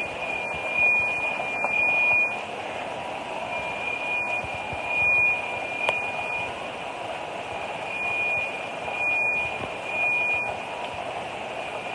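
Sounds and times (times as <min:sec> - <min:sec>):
alarm pulsing high tone: 0:00.0 - 0:02.5, 0:03.4 - 0:06.6, 0:07.5 - 0:10.6.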